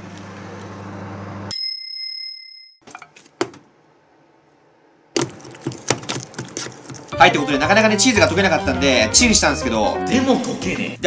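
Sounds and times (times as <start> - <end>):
microwave oven humming: 0.0 - 1.5.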